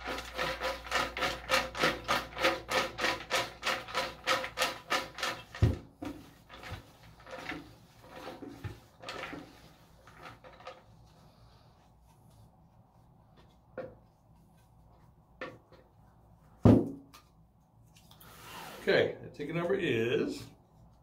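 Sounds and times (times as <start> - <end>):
dull knock: 16.6 - 17.0.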